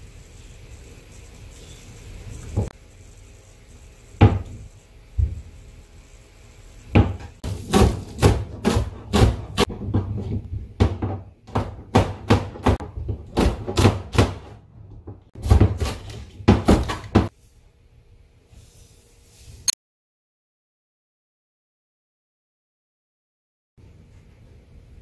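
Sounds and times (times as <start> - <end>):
knife chopping on plastic board: 7.0 - 17.3.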